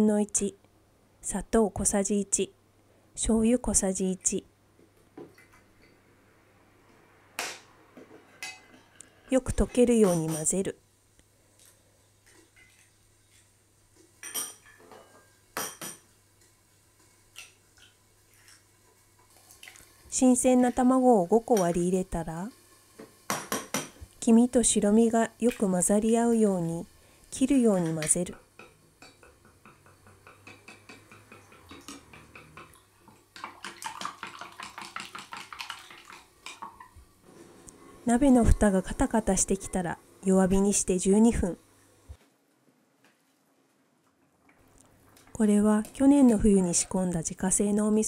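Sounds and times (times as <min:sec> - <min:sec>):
eggs tapping on glass jug: 0:28.4 - 0:32.8, 0:33.4 - 0:36.9.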